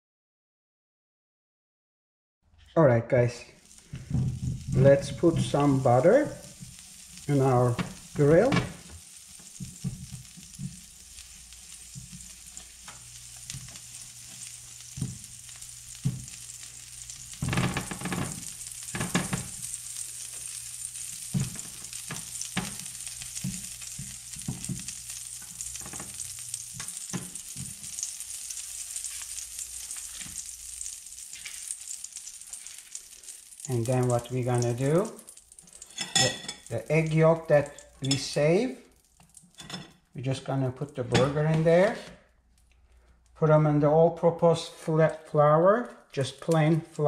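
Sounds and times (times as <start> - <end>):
butter sizzling on a grill pan: 3.4 - 40.1
butter scraping and knocking on ridges: 6.6 - 28.1.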